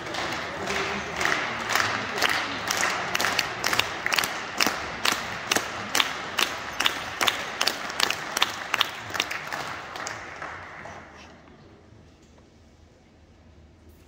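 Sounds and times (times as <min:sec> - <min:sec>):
sharp individual claps: 0:00.0 - 0:11.1
small crowd applauding: 0:00.0 - 0:11.5.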